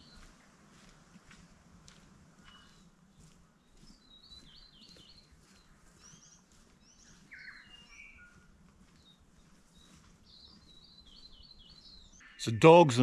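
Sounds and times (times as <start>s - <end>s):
small birds chirping: 0.0s - 1.5s, 2.3s - 13.0s.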